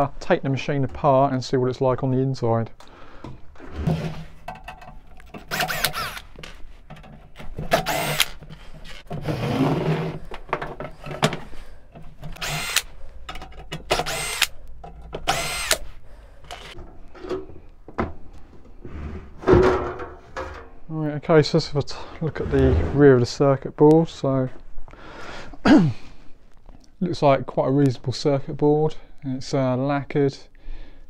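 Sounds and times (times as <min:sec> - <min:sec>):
cordless drill spinning: 0:05.4 - 0:06.6, 0:07.6 - 0:09.0, 0:12.2 - 0:13.0, 0:13.9 - 0:14.6, 0:15.2 - 0:16.8.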